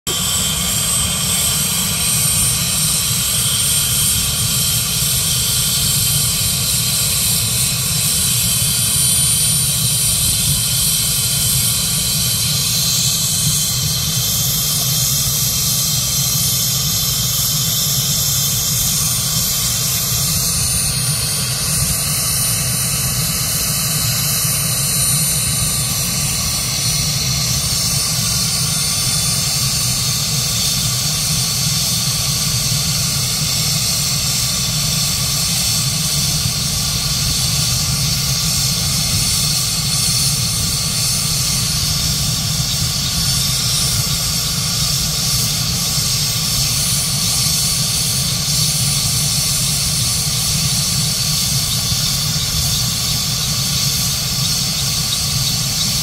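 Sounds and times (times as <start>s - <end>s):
helicopter jet-like rushing hiss: 0.1s - 56.0s
high-pitched turbine whine: 0.1s - 56.0s.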